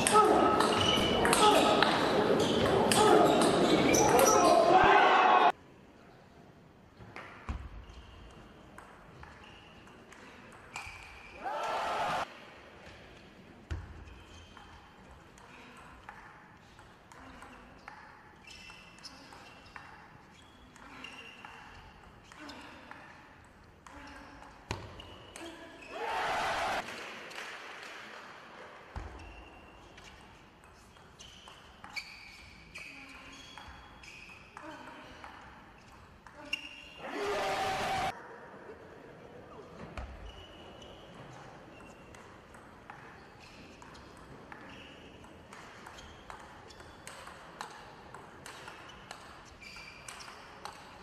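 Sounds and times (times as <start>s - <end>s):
table tennis ball bouncing: 0.0s - 4.5s, 41.8s - 51.0s.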